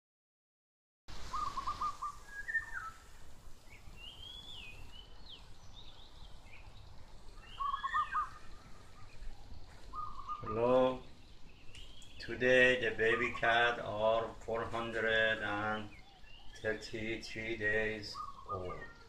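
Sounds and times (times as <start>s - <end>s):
bird whistled gliding calls: 1.2s - 6.7s, 7.3s - 12.3s, 15.8s - 19.0s.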